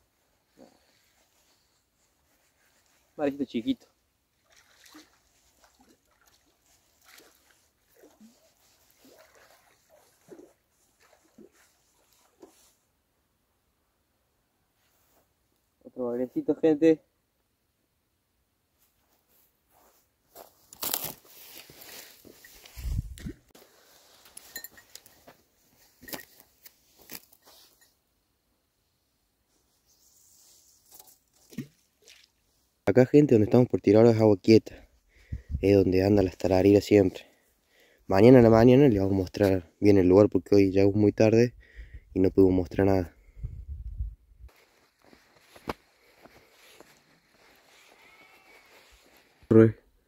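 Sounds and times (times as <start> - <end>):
faint rustling: 18.8 - 28.0, 44.5 - 49.5
faint animal calls: 47.7 - 49.0.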